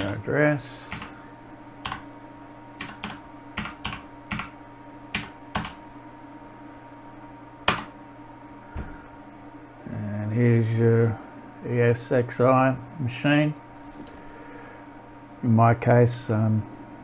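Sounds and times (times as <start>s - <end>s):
faint steady hum: 0.0s - 17.0s
keyboard keystrokes: 1.8s - 2.0s, 2.8s - 4.5s, 5.1s - 5.8s, 7.7s - 7.9s.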